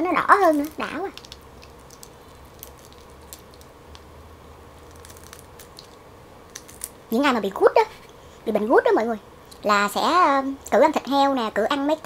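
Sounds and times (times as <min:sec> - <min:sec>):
prawn shell crackling as peeled: 0:00.4 - 0:04.1, 0:04.8 - 0:07.0.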